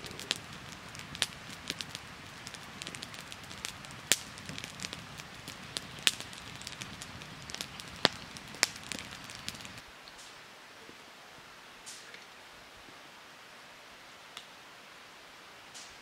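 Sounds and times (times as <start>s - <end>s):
wood fire crackling: 0.0s - 10.4s, 11.8s - 12.2s, 15.7s - 16.0s.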